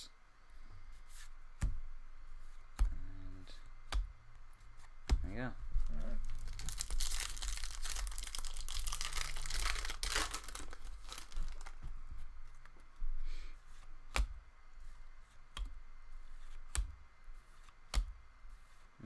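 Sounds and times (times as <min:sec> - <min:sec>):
foil wrapper tearing and crinkling: 0:06.2 - 0:11.7.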